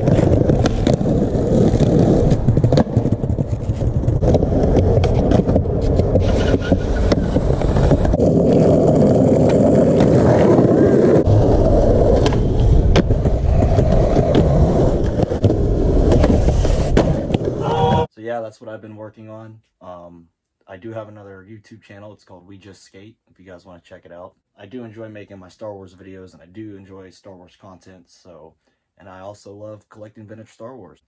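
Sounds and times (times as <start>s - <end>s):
skateboard popping and landing clacks: 0.0s - 17.6s
skateboard wheels rolling on concrete: 0.0s - 18.1s.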